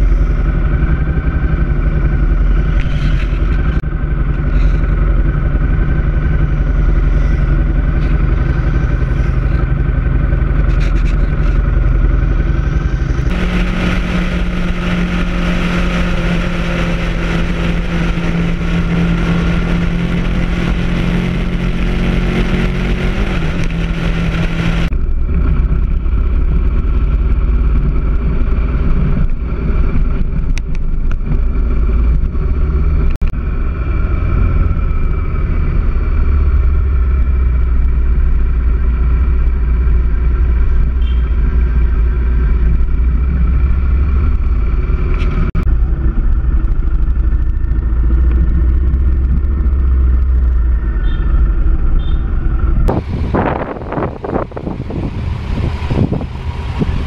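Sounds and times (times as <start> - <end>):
motorcycle engine rumble: 0.0 - 57.0
rough uneven engine noise: 0.0 - 57.0.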